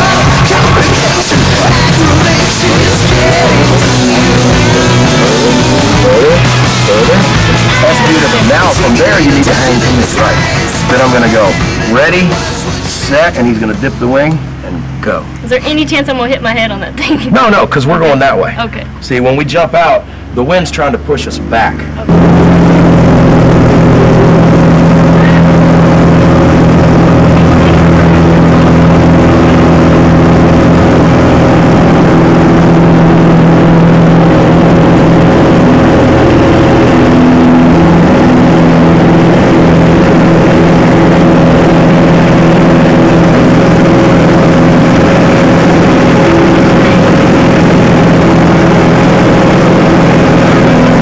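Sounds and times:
propeller plane engine running: 0.0s - 51.0s.

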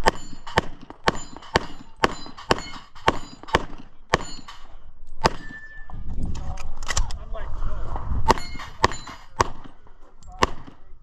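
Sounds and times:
steel plate target ringing: 0.0s - 4.7s, 8.3s - 9.4s
pistol shots: 0.0s - 5.6s, 8.3s - 10.9s.

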